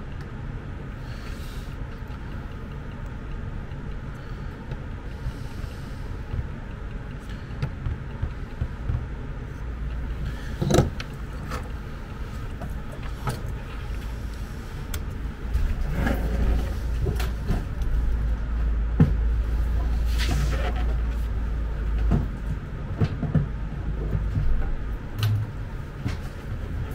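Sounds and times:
low rumble: 0:00.0 - 0:26.9
tools knocking and clattering: 0:10.6 - 0:11.7.

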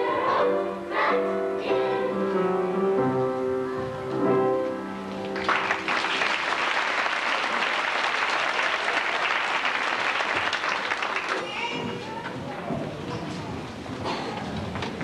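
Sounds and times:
children's chorus singing: 0:00.0 - 0:04.1
audience applauding: 0:05.3 - 0:11.7.

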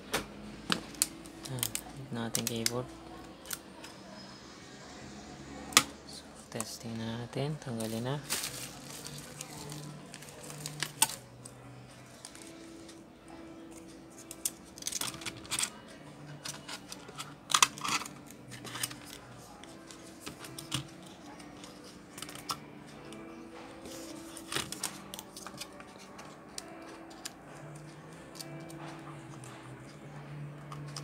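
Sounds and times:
plastic keyboard clicks and clatters: 0:14.3 - 0:15.8, 0:16.4 - 0:19.2, 0:20.2 - 0:22.6, 0:24.4 - 0:28.8, 0:30.6 - 0:31.0.

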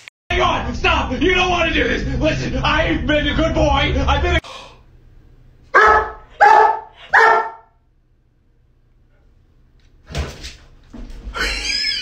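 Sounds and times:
dog barking: 0:05.8 - 0:07.8.

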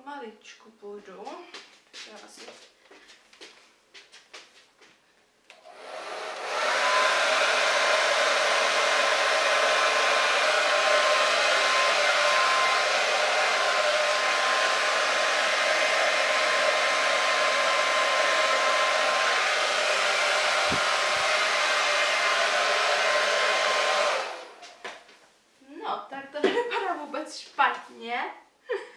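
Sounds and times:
hair dryer blowing: 0:05.5 - 0:25.0.

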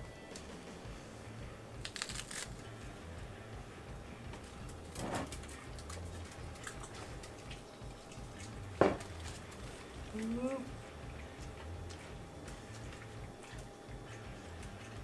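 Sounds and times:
lettuce rustling: 0:01.8 - 0:02.7.

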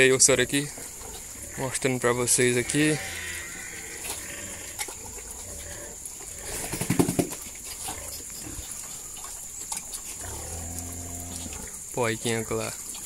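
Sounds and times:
pigs eating noisily: 0:00.0 - 0:13.0.

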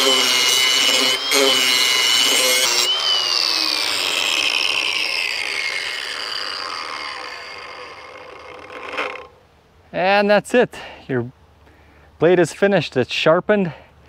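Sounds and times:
angle grinder grinding steel: 0:00.0 - 0:09.3
motor whine spinning down: 0:00.5 - 0:09.3.

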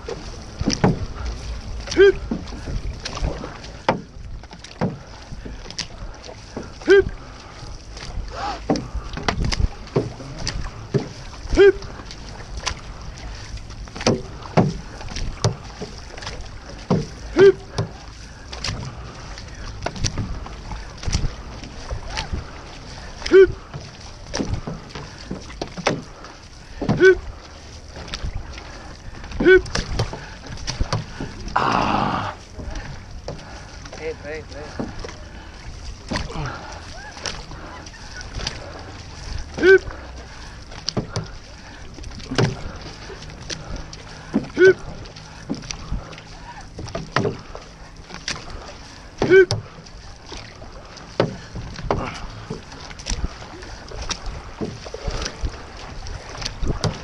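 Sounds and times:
paddles knocking against hull: 0:00.0 - 0:57.0
paddles pulling through water: 0:00.0 - 0:57.0
person shouting: 0:31.6 - 0:32.4.

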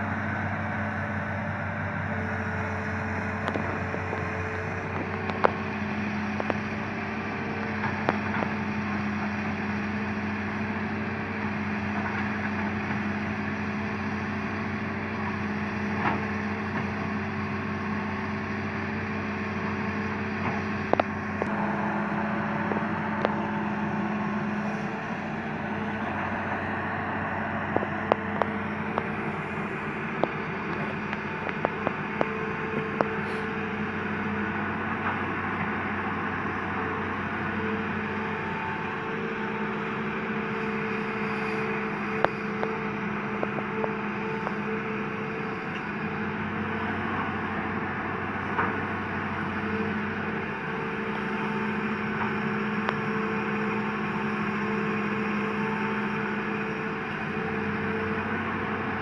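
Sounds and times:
excavator diesel engine running: 0:00.0 - 0:59.0.

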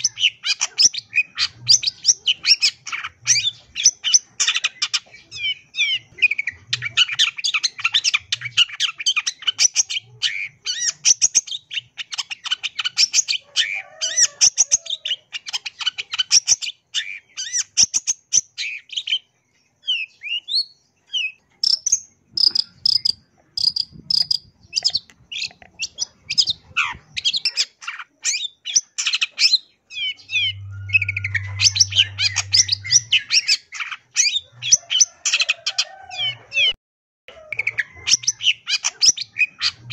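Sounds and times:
bird singing scratchy chatter: 0:00.0 - 0:36.8, 0:37.5 - 0:39.9
clear whistled bird notes: 0:29.9 - 0:35.2.

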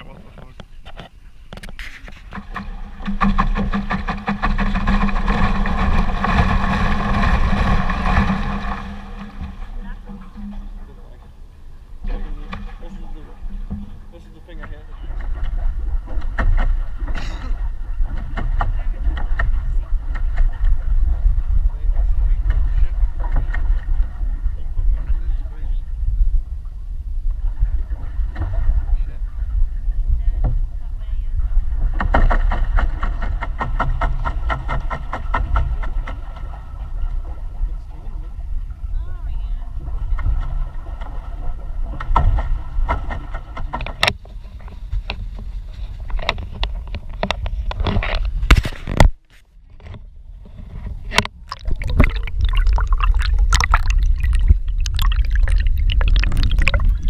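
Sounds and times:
water splashing against hull: 0:01.6 - 0:25.2, 0:51.0 - 0:57.0
wind on microphone: 0:50.9 - 0:57.0
low rumble: 0:51.5 - 0:57.0.

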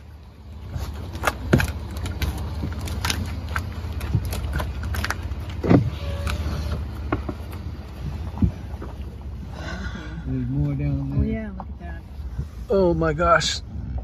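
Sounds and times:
car engine idling: 0:00.0 - 0:14.0
clicks and scrapes on car: 0:00.6 - 0:07.6.

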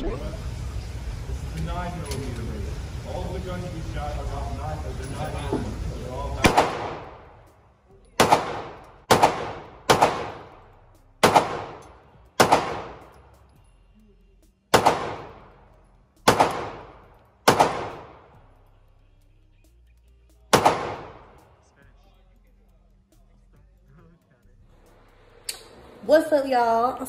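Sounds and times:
pistol shots echoing indoors: 0:06.4 - 0:07.5, 0:08.2 - 0:13.3, 0:14.7 - 0:18.5, 0:20.5 - 0:21.5.

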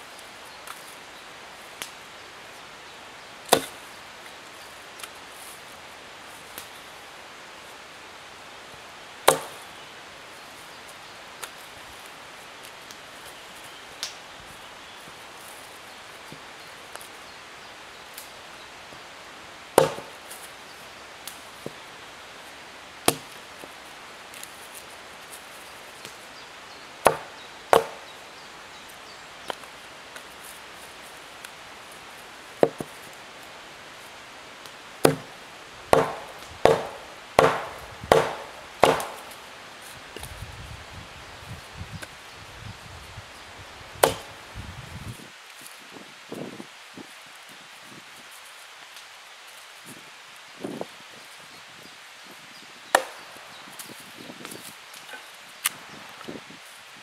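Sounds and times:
wood being chopped: 0:03.5 - 0:03.8, 0:09.2 - 0:09.7, 0:19.8 - 0:20.4, 0:23.0 - 0:23.4, 0:27.0 - 0:28.2, 0:32.6 - 0:32.9, 0:35.0 - 0:39.4, 0:44.0 - 0:44.3, 0:52.9 - 0:53.3.

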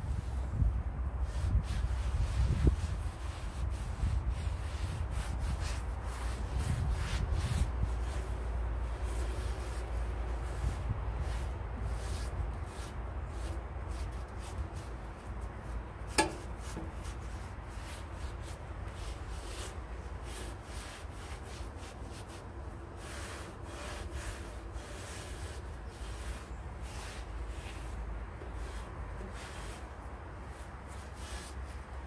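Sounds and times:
steady low rumble: 0:00.0 - 0:20.2
rubbing strokes: 0:01.2 - 0:32.0.

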